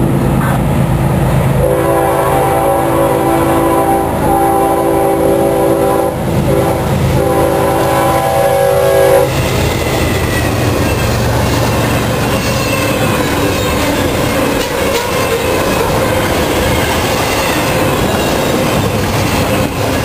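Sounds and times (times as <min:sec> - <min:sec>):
locomotive engine: 0:00.0 - 0:20.0
rumble and clatter of rail cars: 0:00.0 - 0:20.0
locomotive air horn blasts: 0:01.6 - 0:09.5.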